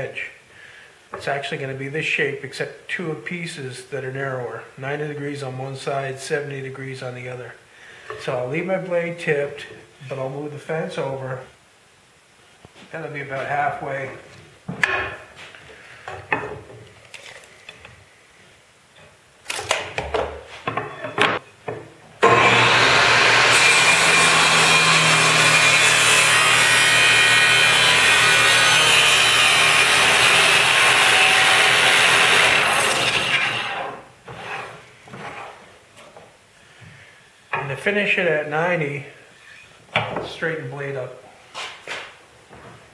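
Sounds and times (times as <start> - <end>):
table saw cutting wood: 22.2 - 34.0.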